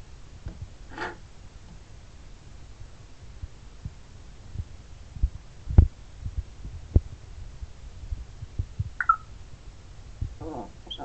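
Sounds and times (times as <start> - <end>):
soft low thumps: 2.7 - 11.0
parrot chirp: 9.0 - 9.3, 10.4 - 11.0.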